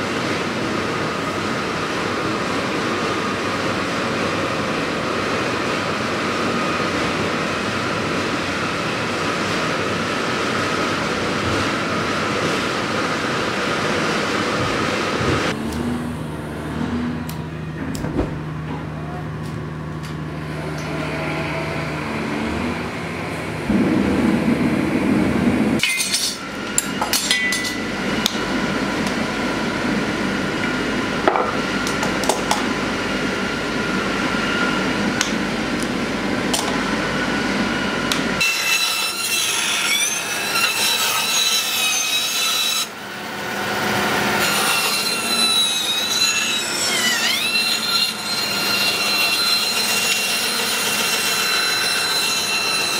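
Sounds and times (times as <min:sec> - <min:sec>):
gas forge humming: 0:00.0 - 0:38.5
knocks and scraping of shop work: 0:14.5 - 0:16.0, 0:16.7 - 0:21.4, 0:25.8 - 0:29.2, 0:31.2 - 0:32.8, 0:36.4 - 0:36.8, 0:38.1 - 0:42.9, 0:44.4 - 0:52.9
bandsaw cutting wood: 0:38.1 - 0:43.0, 0:43.8 - 0:52.9.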